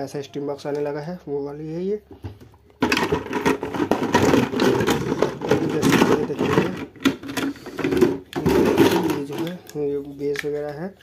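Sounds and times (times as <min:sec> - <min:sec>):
plastic parts clattering in a jar: 0:02.8 - 0:10.9.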